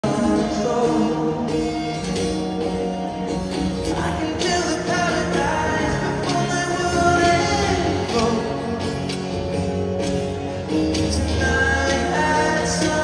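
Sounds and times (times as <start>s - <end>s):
person singing: 0.0s - 2.3s, 3.6s - 9.5s, 10.9s - 13.0s
guitar: 0.0s - 13.0s
live concert music over pa: 0.0s - 13.0s.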